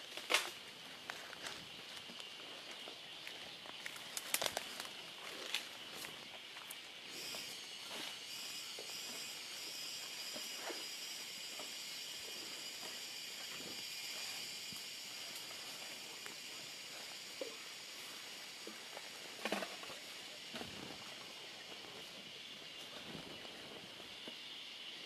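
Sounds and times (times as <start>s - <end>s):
leaf litter and twigs crackling: 0.0s - 24.4s
steady high hiss: 0.0s - 25.0s.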